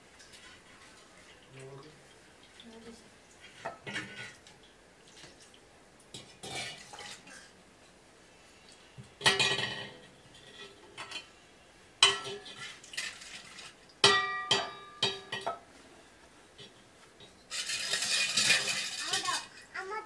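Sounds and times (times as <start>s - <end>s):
metal dishes clinking: 3.5s - 4.4s, 6.1s - 7.5s, 9.2s - 11.3s, 12.0s - 15.6s, 16.6s - 19.5s
scraping rustle: 17.5s - 19.6s.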